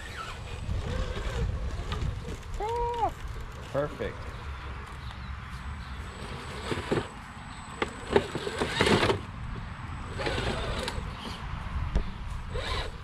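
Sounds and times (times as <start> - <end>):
tyres scraping on wood: 6.1 - 7.2.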